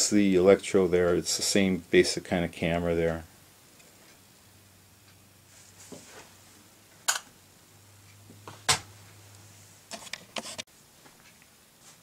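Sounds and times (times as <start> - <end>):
soft rustle: 5.4 - 6.6, 9.0 - 12.0.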